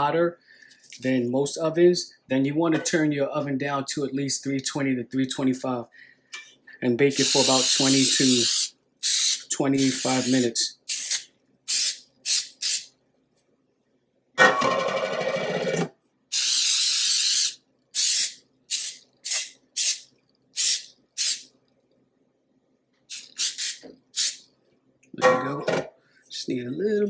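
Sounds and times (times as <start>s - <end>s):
aerosol spray hissing: 7.1s - 12.9s, 16.3s - 21.5s, 23.1s - 24.4s.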